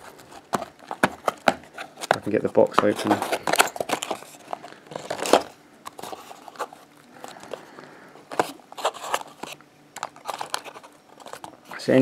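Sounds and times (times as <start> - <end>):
cardboard box clicks and rustles: 0.1 - 6.7.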